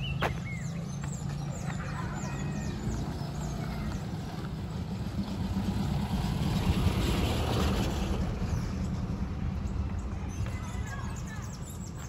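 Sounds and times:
vehicle passing: 0.0 - 11.9.

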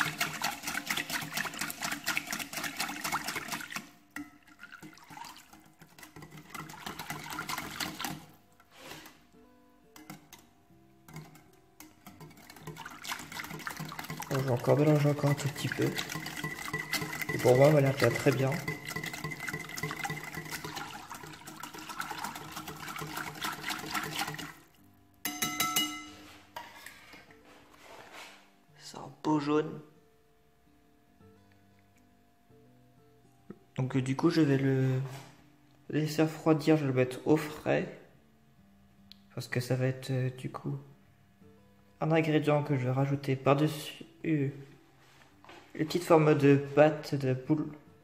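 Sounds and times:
wire whisk beating in a bowl: 0.0 - 8.4, 10.0 - 10.5, 11.1 - 24.6, 25.2 - 26.2.

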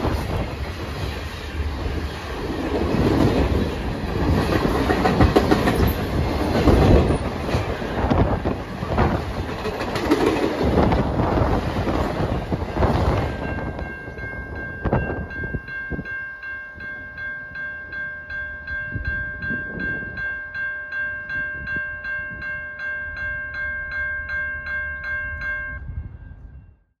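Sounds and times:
train wheel clacks: 0.0 - 15.2
low rumble of a train: 0.0 - 27.0
crossing bell ringing: 2.1 - 27.0.

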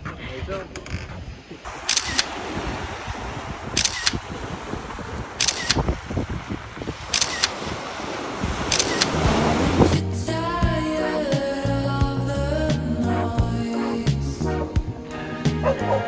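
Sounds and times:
outdoor background hiss: 0.4 - 13.1
camera shutter double click: 1.8 - 2.3, 3.8 - 4.2, 5.4 - 5.8, 7.1 - 7.6, 8.7 - 9.2.

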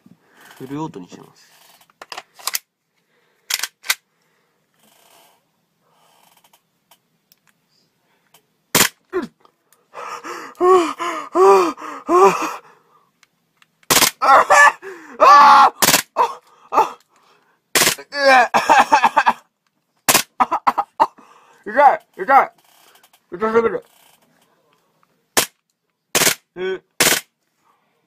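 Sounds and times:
airsoft pistol shots: 8.8 - 9.0, 13.9 - 14.2, 15.8 - 16.1, 17.8 - 18.0, 20.1 - 20.3, 26.2 - 26.4, 27.0 - 27.3
man crying out and gasping: 9.1 - 12.9, 14.1 - 17.1, 18.0 - 19.4.

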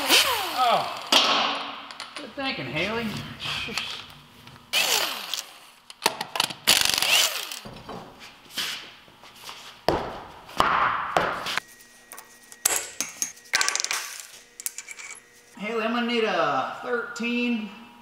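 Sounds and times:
pneumatic impact wrench bursts: 0.0 - 1.1, 4.7 - 5.7, 6.6 - 7.6.

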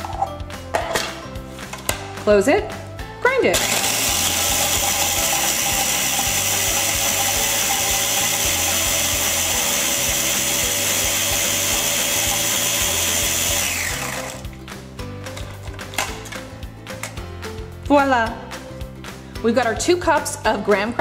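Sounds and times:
food processor grinding: 3.5 - 14.6
motor winding down whine: 3.6 - 14.4.

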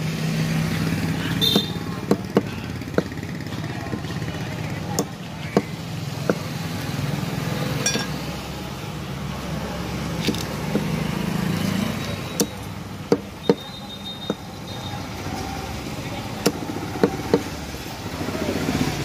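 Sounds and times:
chopper striking meat on wooden block: 1.4 - 3.2.

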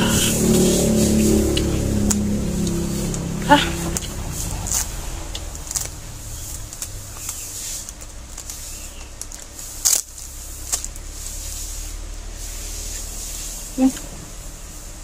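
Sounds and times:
loud sharp sound: 0.0 - 7.8
chewing and mouth noises: 0.0 - 11.0.

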